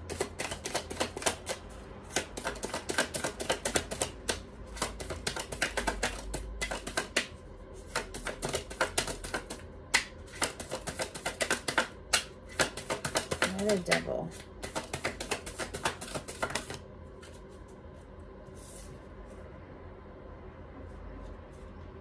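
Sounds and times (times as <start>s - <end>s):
cards being shuffled: 0.1s - 17.7s.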